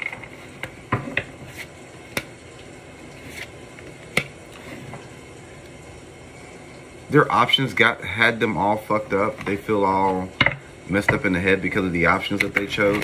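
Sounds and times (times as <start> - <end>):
cards being shuffled: 1.4 - 2.3, 3.2 - 4.7.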